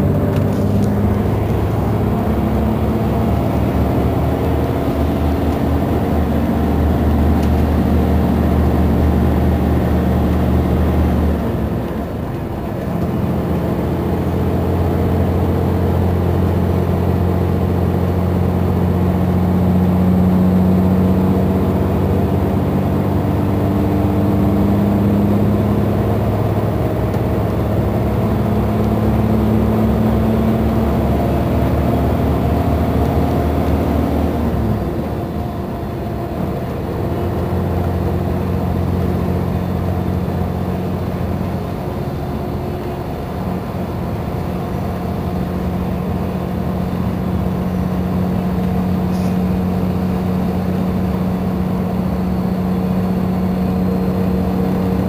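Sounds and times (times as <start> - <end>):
bus diesel engine running: 0.0 - 55.0.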